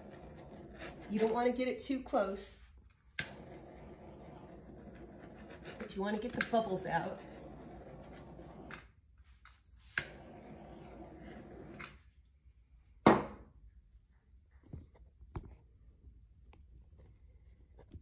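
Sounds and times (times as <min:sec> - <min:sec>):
torch flame hissing: 0:00.0 - 0:08.9, 0:09.7 - 0:12.0
torch igniter click: 0:03.1 - 0:03.6, 0:09.9 - 0:10.3.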